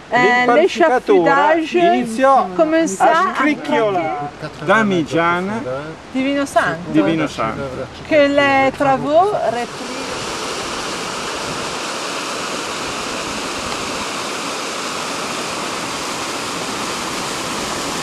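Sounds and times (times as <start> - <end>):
white water rushing through gorge: 8.8 - 18.0.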